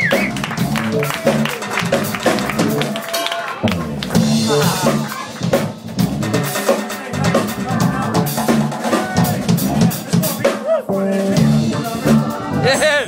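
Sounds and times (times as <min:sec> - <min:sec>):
drum kit strokes: 0:00.0 - 0:13.0
live band playing: 0:00.0 - 0:13.0.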